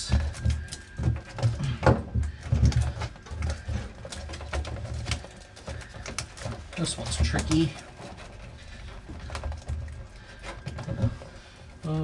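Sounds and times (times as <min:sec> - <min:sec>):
foil sheet crinkling: 0:02.6 - 0:12.0.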